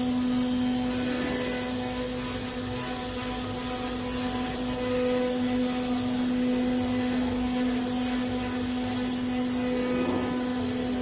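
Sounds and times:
wood router humming: 0.0 - 11.0.

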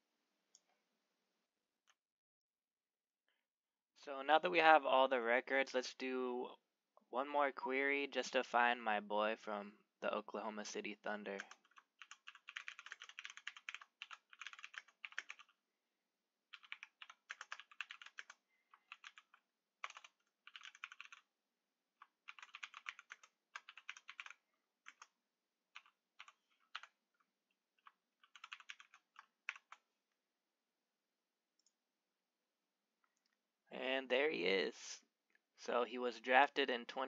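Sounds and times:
typing on keyboard: 11.4 - 15.6, 16.5 - 21.3, 22.0 - 27.0, 27.8 - 29.8.

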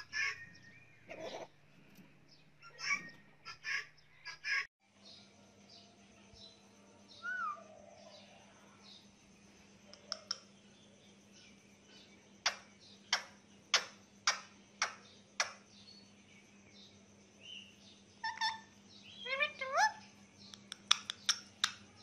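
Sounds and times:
bird chirps: 0.0 - 1.5, 2.3 - 22.0
parakeet beak clicks: 9.9 - 10.5, 12.4 - 15.6, 20.5 - 21.8.

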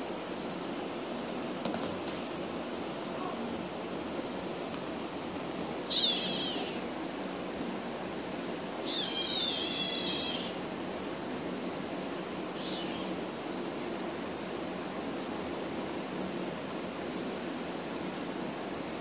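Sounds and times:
steady background hiss: 0.0 - 19.0
kitten squealing: 5.9 - 6.8, 8.8 - 10.6, 12.6 - 13.1.

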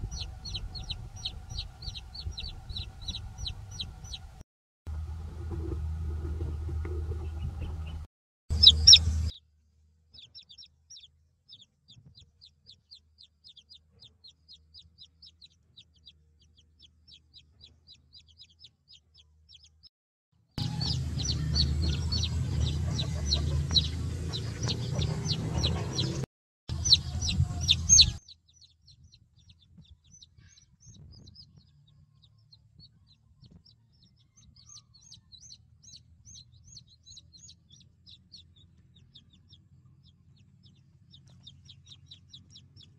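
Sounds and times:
chicks peeping: 0.0 - 4.4, 6.4 - 9.4, 10.2 - 19.7, 20.6 - 42.9
low rumble: 0.0 - 9.3, 20.6 - 28.2.

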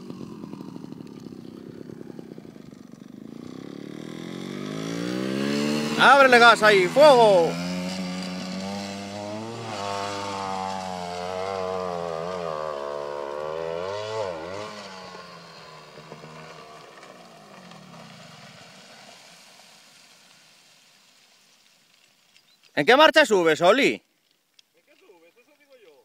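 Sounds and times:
motorcycle engine revving: 0.0 - 19.4.

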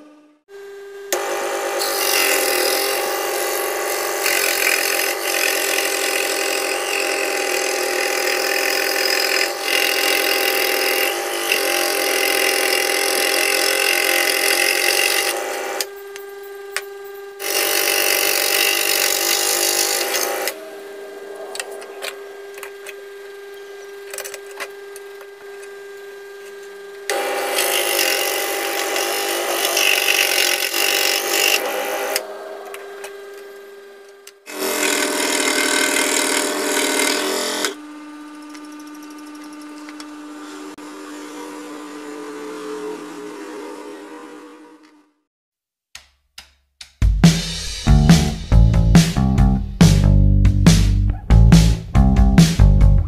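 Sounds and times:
scroll saw motor hum: 0.0 - 45.2
saw blade cutting wood: 1.1 - 23.1, 27.1 - 33.8, 34.4 - 37.8.

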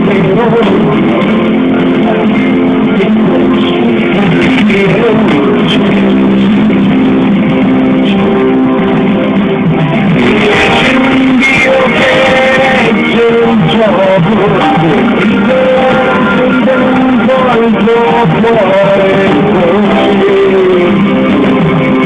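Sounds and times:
live band playing: 0.0 - 22.0.

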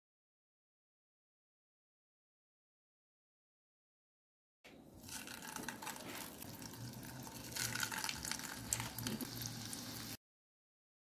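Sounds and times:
patties sizzling in hot oil: 5.0 - 10.2.

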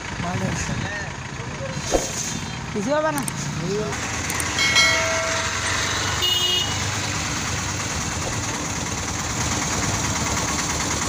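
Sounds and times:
tractor diesel engines running: 0.0 - 11.0
brief high tone: 4.6 - 6.2.

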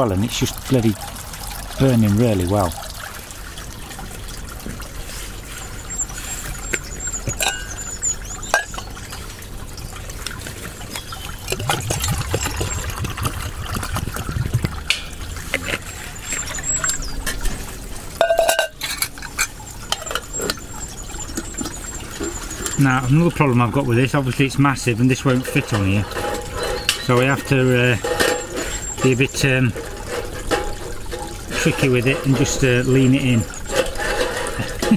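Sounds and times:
water pouring into metal mug: 0.0 - 34.9
metal mug clinking: 7.3 - 7.8, 8.4 - 8.8, 18.2 - 20.6.

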